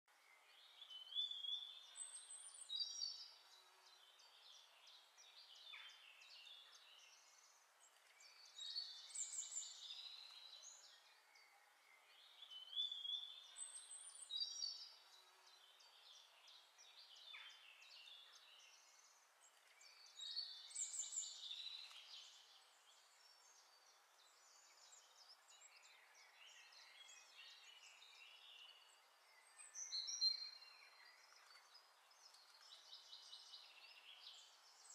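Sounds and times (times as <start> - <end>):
small bird singing: 0.1 - 34.9.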